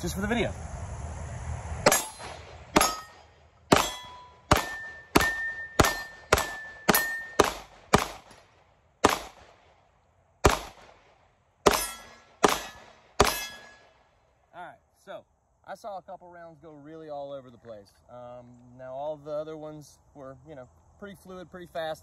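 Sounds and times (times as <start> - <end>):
bullets ringing on steel targets: 1.9 - 8.4, 11.7 - 13.9
pistol shots: 1.9 - 9.7, 10.4 - 13.9.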